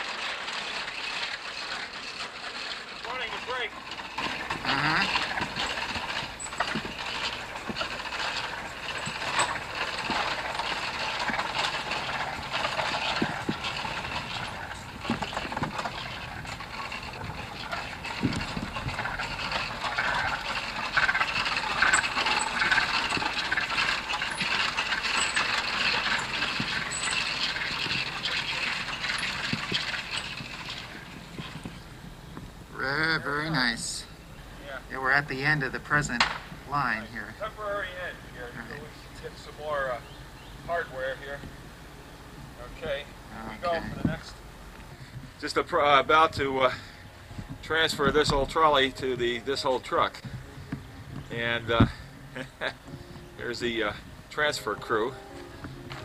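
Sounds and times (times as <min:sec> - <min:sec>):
trolley car rattling on track: 0:00.0 - 0:32.1
wheels clicking: 0:00.0 - 0:56.0.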